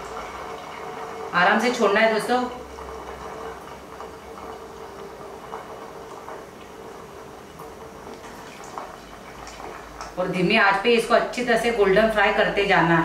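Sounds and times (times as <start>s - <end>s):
oil bubbles popping: 0.0s - 1.4s, 2.6s - 10.8s
deep-frying sizzle: 0.0s - 13.0s.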